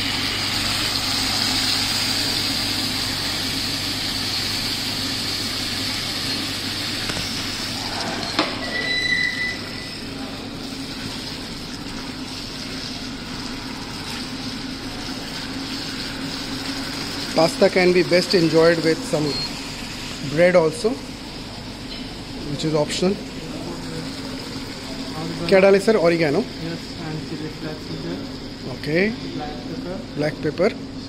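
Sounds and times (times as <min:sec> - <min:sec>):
sauce sizzling in a pan: 0:00.0 - 0:07.8
short beep: 0:08.6 - 0:10.0, 0:19.2 - 0:19.6.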